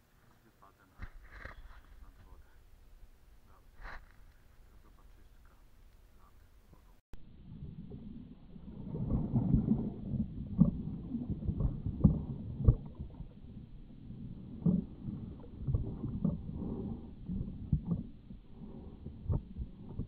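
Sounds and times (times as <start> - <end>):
water sloshing and splashing: 7.4 - 20.0.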